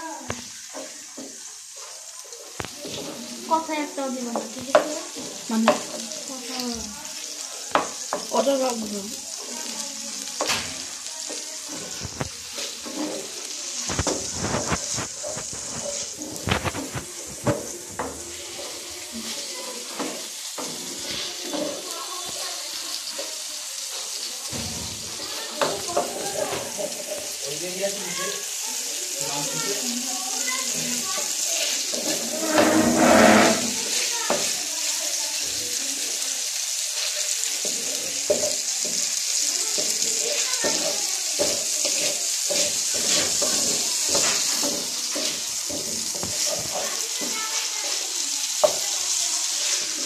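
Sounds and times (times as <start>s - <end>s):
chicken sizzling in oil: 0.0s - 50.0s
metal spatula scraping a pan: 0.6s - 6.6s, 9.3s - 22.4s, 30.7s - 34.6s, 36.8s - 48.8s, 49.5s - 50.0s.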